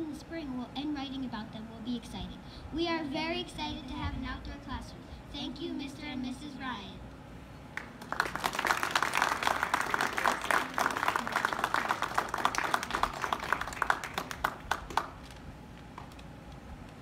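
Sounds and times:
crowd applauding: 7.8s - 15.4s.

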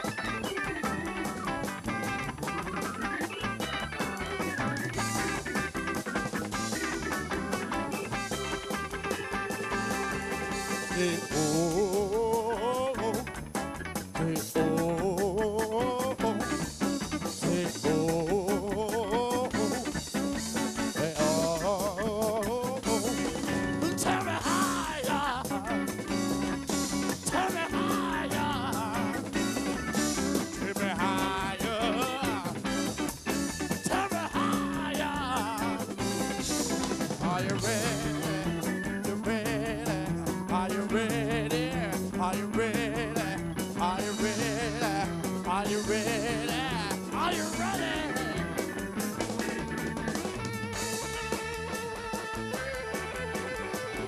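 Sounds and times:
electric blues band playing: 0.0s - 54.0s
person singing: 8.3s - 13.4s, 14.2s - 16.7s, 17.3s - 20.0s, 20.8s - 26.3s, 27.0s - 48.9s.

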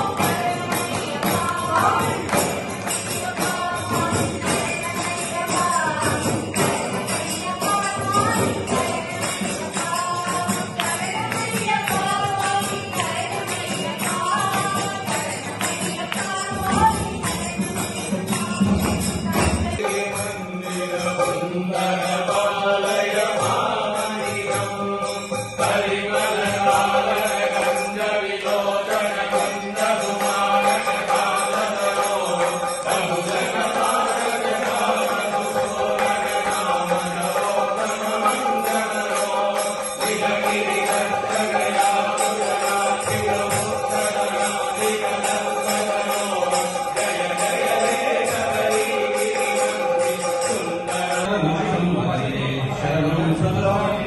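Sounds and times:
group chanting together: 0.0s - 17.4s, 19.7s - 54.0s
percussion beat: 0.0s - 54.0s.

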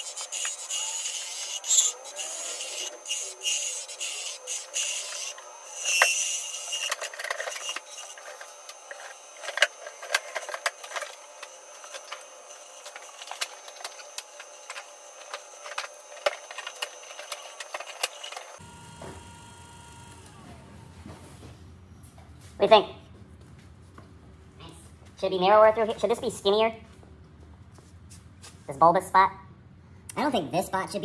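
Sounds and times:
turning tool scraping wood: 0.0s - 18.6s
lathe high whine: 0.0s - 21.2s.

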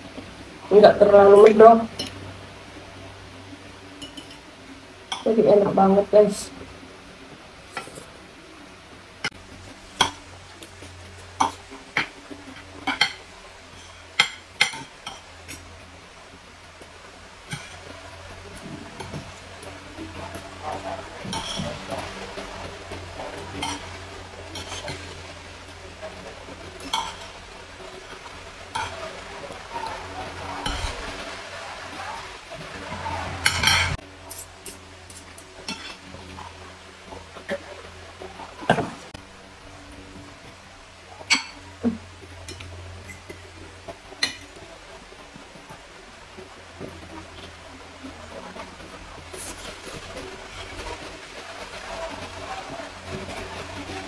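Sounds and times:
cutlery clinking and scraping on plates: 4.0s - 4.4s, 7.7s - 8.1s, 11.4s - 15.6s, 17.4s - 18.0s, 20.2s - 22.4s, 23.3s - 25.2s, 26.8s - 27.4s, 30.6s - 31.2s, 33.4s - 36.5s, 41.2s - 41.6s, 42.4s - 43.4s.

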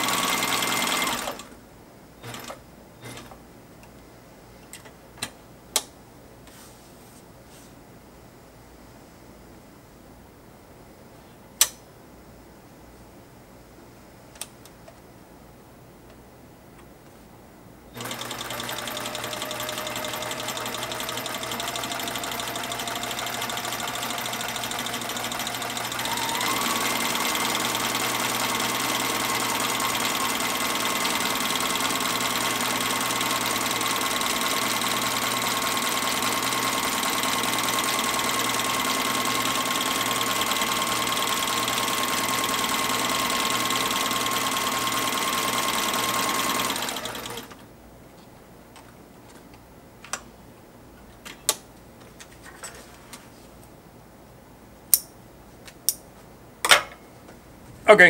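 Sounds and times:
sewing machine stitching: 0.0s - 1.5s, 18.0s - 47.6s.

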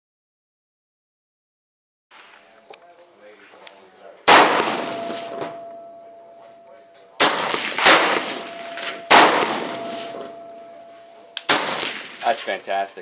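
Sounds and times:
suppressed rifle shots echoing: 4.3s - 6.0s, 7.2s - 12.3s.

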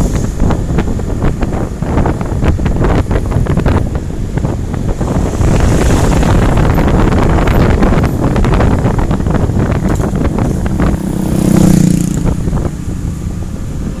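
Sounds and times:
wind buffeting microphone: 0.0s - 14.0s
motorcycle engine passing: 4.9s - 8.6s, 10.6s - 12.6s.

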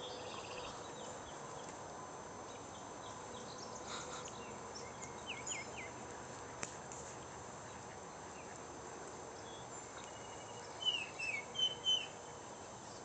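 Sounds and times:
songbirds chirping: 0.0s - 13.0s
bird whistling notes: 10.2s - 12.2s.

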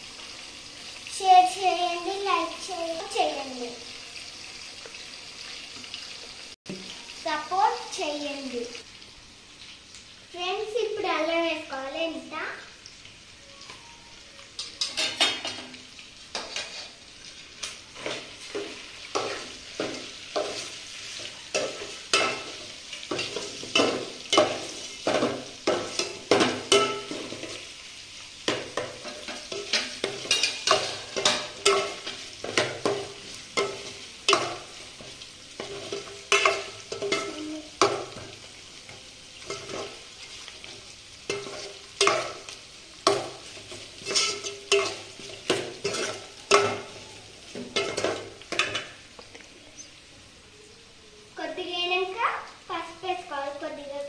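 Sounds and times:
spoon scraping metal pot: 16.4s - 17.0s, 44.0s - 46.9s.

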